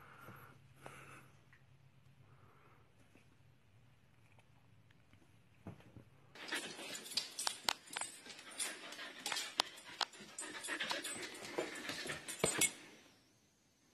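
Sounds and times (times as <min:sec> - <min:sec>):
dog panting and snuffling: 0:06.4 - 0:12.8.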